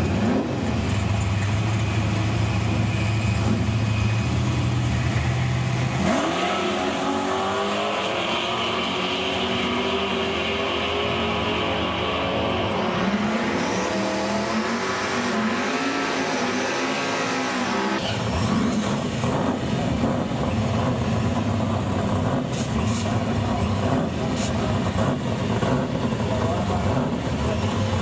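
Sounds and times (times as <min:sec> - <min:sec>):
car burnout with tyres spinning: 0:00.0 - 0:28.0
drag racing car engines accelerating: 0:00.0 - 0:28.0.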